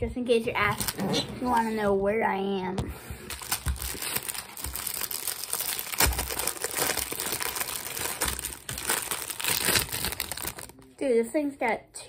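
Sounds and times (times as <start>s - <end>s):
plastic wrapper crinkling: 0.6s - 1.7s, 3.3s - 11.1s.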